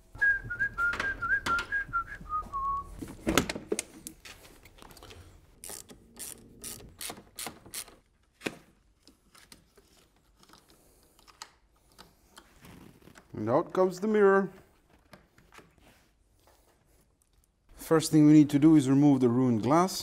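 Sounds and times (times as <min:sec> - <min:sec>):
man whistling: 0:00.1 - 0:02.9.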